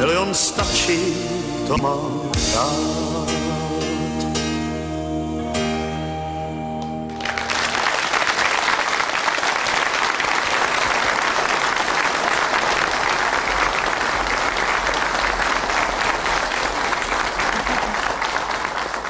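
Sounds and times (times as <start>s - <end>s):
audience applauding: 7.1s - 19.0s.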